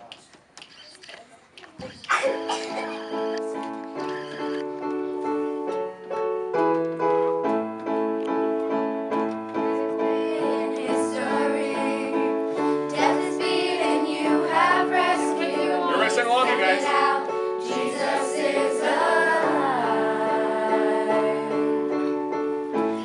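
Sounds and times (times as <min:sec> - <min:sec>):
piano playing chords: 0:02.3 - 0:23.0
girls singing: 0:10.1 - 0:21.9.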